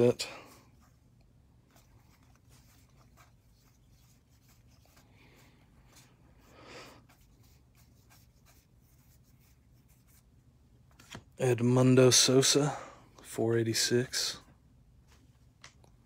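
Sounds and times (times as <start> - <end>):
cards sliding and flicking: 10.9 - 11.3.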